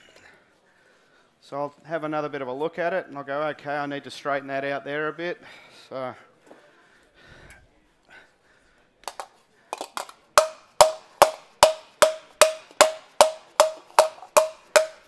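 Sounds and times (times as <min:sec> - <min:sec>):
rubber mallet striking metal panel: 0:10.4 - 0:15.0.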